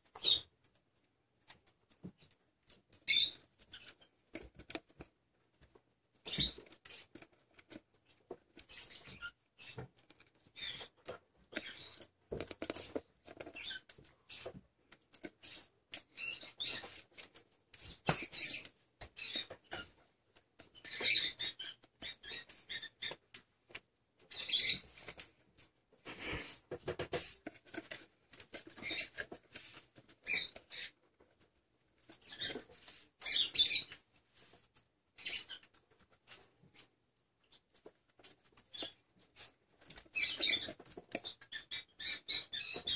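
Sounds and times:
seeds rattling and scratching: 0:06.2 - 0:14.5.

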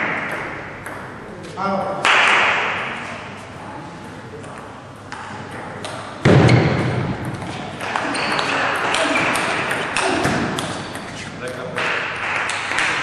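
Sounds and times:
loud thump: 0:06.2 - 0:07.2.

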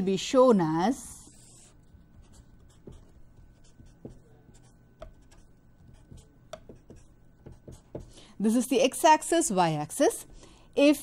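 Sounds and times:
marker strokes on paper: 0:01.2 - 0:08.1.

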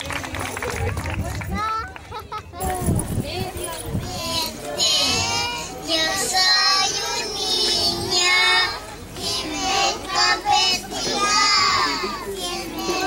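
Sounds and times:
children singing together: 0:04.1 - 0:13.0.

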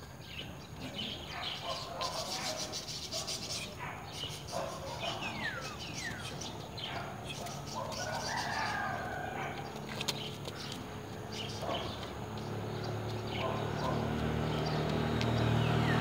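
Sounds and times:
birds chirping: 0:00.0 - 0:16.0
motor scooter engine approaching: 0:04.9 - 0:16.0.

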